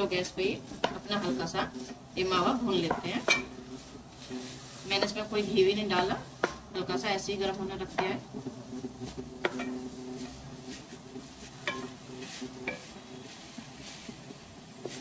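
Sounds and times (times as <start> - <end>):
faint sizzle: 0.0 - 15.0
wooden spatula scraping pan: 0.0 - 15.0
spatula knocking against pan: 6.4 - 6.7, 9.4 - 9.9, 11.6 - 12.0, 12.6 - 12.9.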